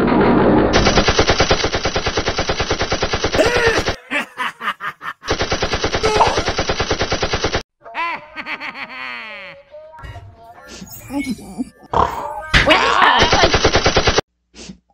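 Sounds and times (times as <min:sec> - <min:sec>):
cartoon machine-gun fire: 0:00.8 - 0:04.0, 0:05.3 - 0:07.6, 0:13.2 - 0:14.2.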